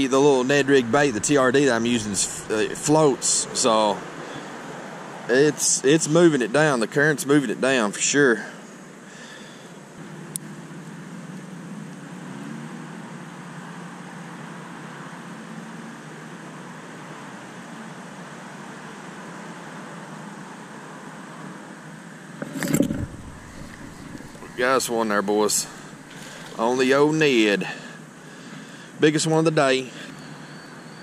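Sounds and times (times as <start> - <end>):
passing road traffic: 0.0 - 6.3, 8.8 - 29.0
fishing rod handling noise: 22.4 - 24.8.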